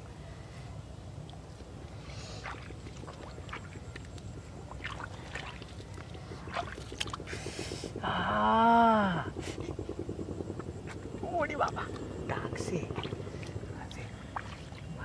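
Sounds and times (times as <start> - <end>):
shallow water splashing: 1.2 - 7.5, 12.7 - 15.0.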